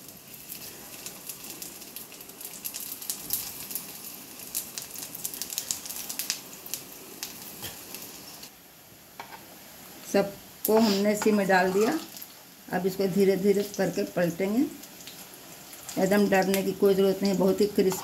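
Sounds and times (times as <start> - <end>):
crackling pops of frying: 0.0 - 8.5, 14.7 - 18.0
food sizzling in hot oil: 0.0 - 18.0.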